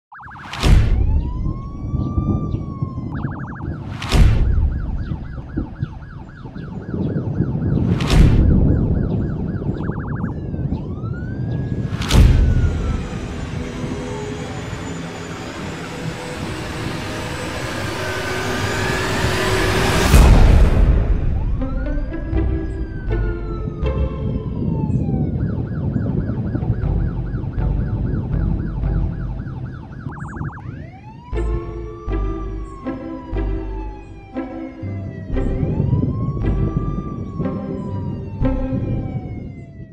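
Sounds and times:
police siren wailing and yelping: 0:00.0 - 0:20.3, 0:21.1 - 0:39.9
loud boom hits: 0:00.4 - 0:02.0, 0:03.2 - 0:06.0, 0:07.8 - 0:09.5, 0:11.9 - 0:23.5
low rumble: 0:00.5 - 0:39.9
low rumbling bed: 0:31.3 - 0:39.3.

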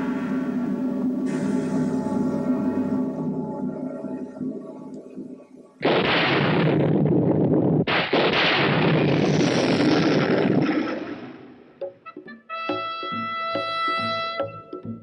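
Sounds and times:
loud rumbling crash: 0:05.8 - 0:11.6
pitched musical notes: 0:11.7 - 0:15.0.

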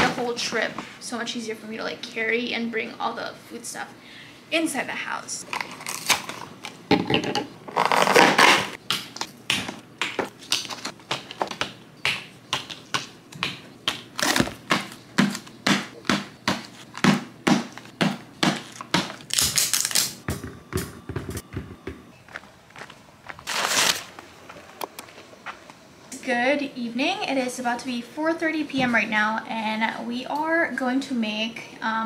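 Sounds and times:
cardboard box tearing: 0:07.8 - 0:08.7, 0:23.5 - 0:24.1.

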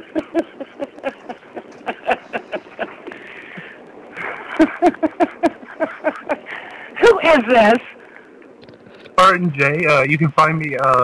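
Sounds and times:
people laughing: 0:00.0 - 0:06.8.

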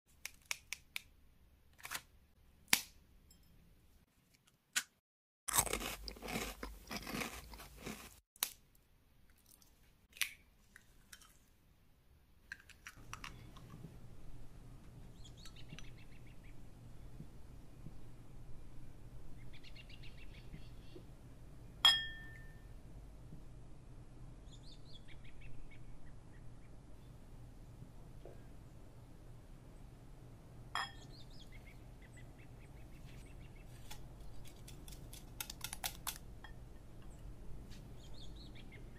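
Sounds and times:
glassy clink: 0:03.3 - 0:03.6, 0:21.9 - 0:22.6, 0:30.8 - 0:31.1
crisp wafers cracking and crunching: 0:05.5 - 0:10.4, 0:33.8 - 0:36.2
low room hum: 0:05.5 - 0:38.9.

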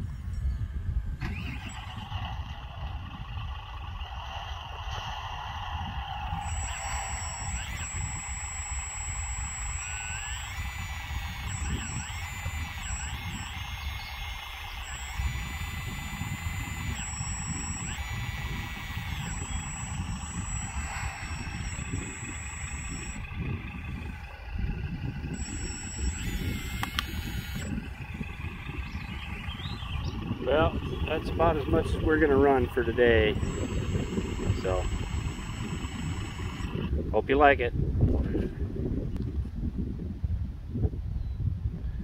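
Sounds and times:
hydraulic pump whining: 0:00.4 - 0:37.6.

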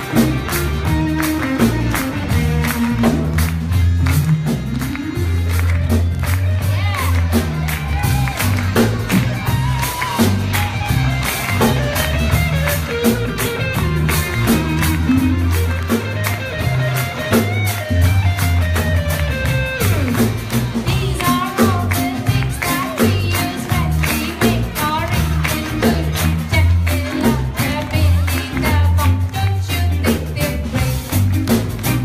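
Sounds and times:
drum beat: 0:00.0 - 0:32.0
electric guitars: 0:00.0 - 0:32.0
woman singing: 0:20.8 - 0:31.2.

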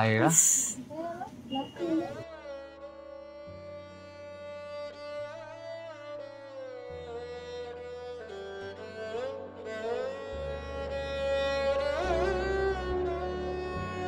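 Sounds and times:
string instrument sliding melody: 0:02.2 - 0:14.0
long held low notes: 0:07.7 - 0:14.0.

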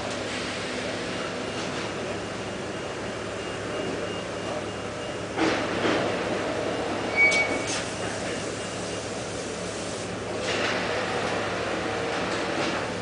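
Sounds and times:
production line machinery: 0:00.0 - 0:13.0
brief high squeal: 0:07.1 - 0:08.0.

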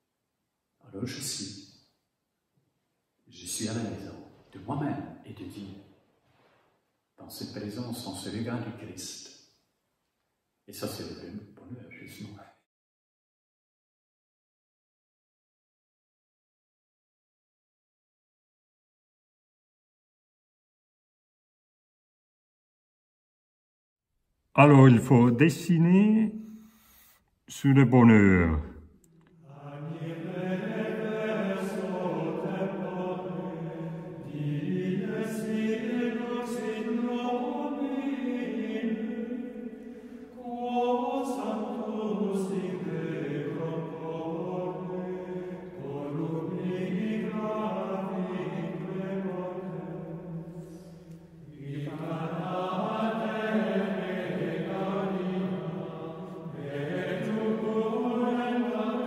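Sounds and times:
men singing plainchant: 0:29.5 - 0:59.0.

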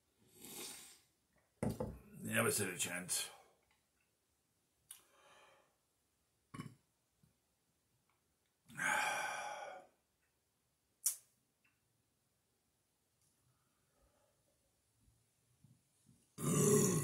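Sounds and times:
man burping: 0:06.5 - 0:06.8, 0:16.4 - 0:17.0
man breathing out: 0:08.8 - 0:09.9.

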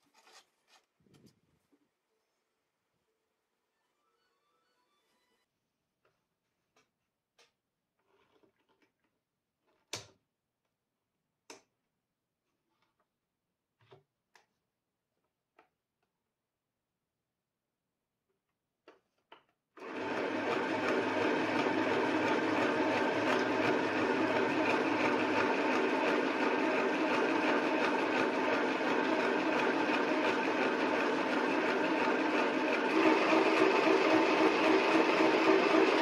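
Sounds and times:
sewing machine stitching: 0:19.8 - 0:36.0.

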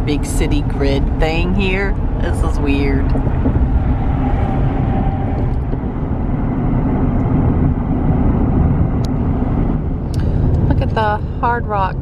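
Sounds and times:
car cabin road rumble: 0:00.0 - 0:12.0.

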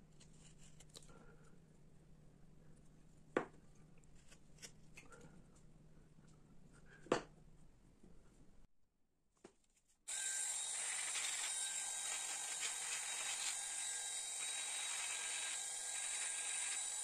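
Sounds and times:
rotary tool grinding wood: 0:10.1 - 0:17.0.

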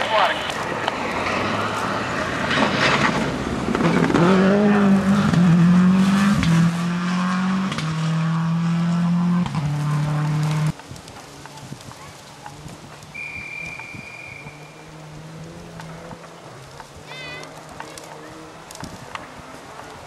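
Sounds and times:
rally car driving past: 0:00.7 - 0:10.7, 0:14.3 - 0:19.8.

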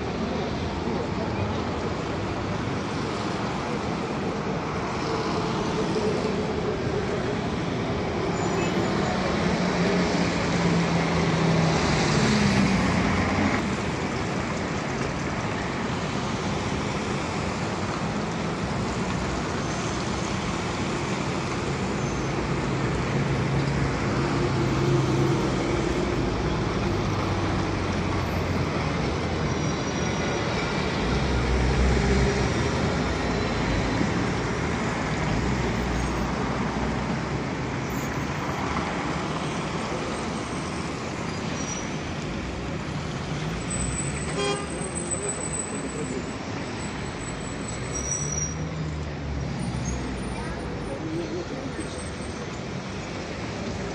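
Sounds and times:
buses and cars driving past: 0:00.0 - 0:53.9
traffic hum: 0:00.0 - 0:53.9.

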